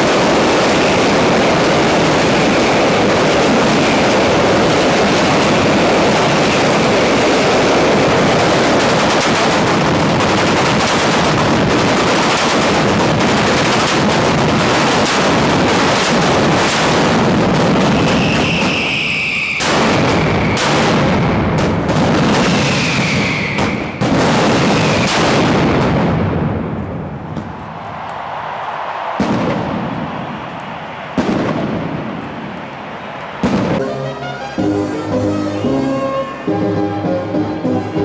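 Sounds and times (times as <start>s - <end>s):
firework whistle: 0.0s - 9.8s, 12.2s - 21.6s, 22.3s - 25.4s, 29.2s - 38.0s
firecrackers rattling: 0.0s - 37.0s.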